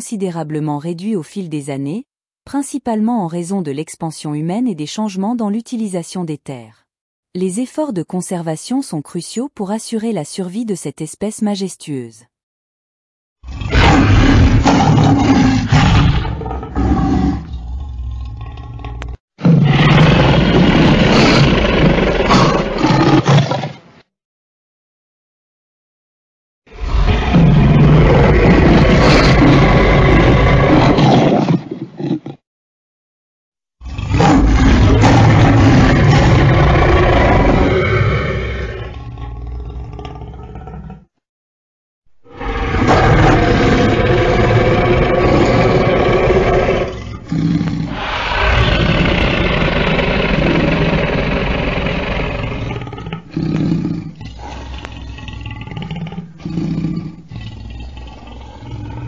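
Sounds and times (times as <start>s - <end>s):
lion grunting: 13.4s - 23.8s, 26.7s - 32.4s, 33.8s - 41.1s, 42.2s - 59.0s
lion roaring: 13.4s - 23.8s, 26.7s - 32.4s, 33.8s - 41.1s, 42.2s - 59.0s.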